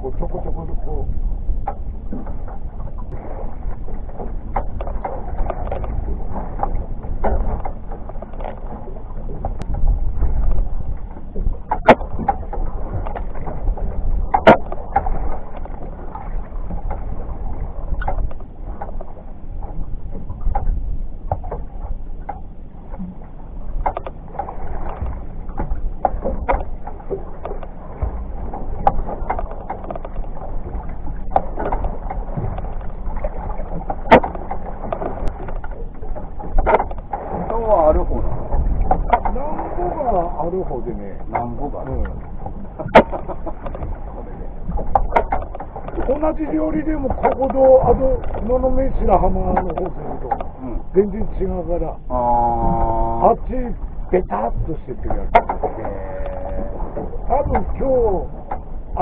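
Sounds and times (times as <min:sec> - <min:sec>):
water lapping against boat hull: 0:00.0 - 0:59.0
sharp knocks: 0:11.4 - 0:15.8, 0:23.8 - 0:39.6, 0:40.8 - 0:43.9, 0:44.7 - 0:48.6, 0:54.9 - 0:55.8.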